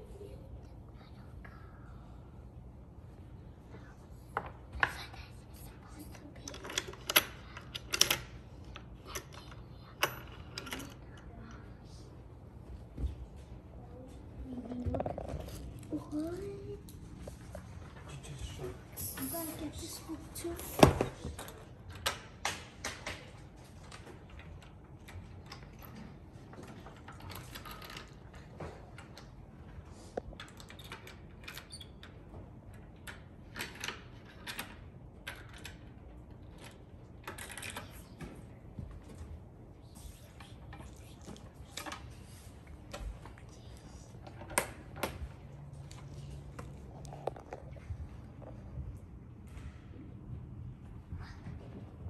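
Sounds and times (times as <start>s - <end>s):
low steady hum: 0.0s - 52.0s
wooden pieces clicking and knocking: 6.4s - 11.2s.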